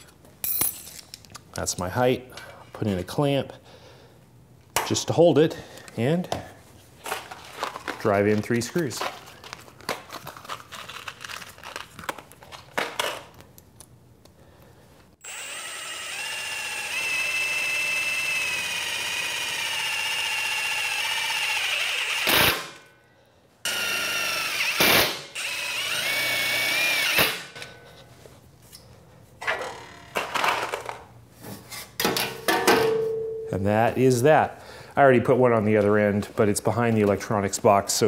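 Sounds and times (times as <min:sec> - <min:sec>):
impact driver motor whining: 0:15.2 - 0:22.8, 0:23.7 - 0:27.6
impact driver loud bursts: 0:15.2 - 0:22.9, 0:23.7 - 0:27.6.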